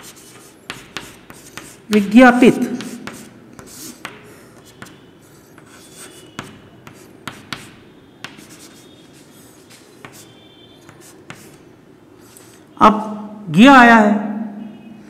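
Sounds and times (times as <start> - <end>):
chalk tapping on board: 0.0 - 2.2, 2.8 - 11.6
chalk scratching on chalkboard: 0.0 - 11.6, 12.2 - 12.6.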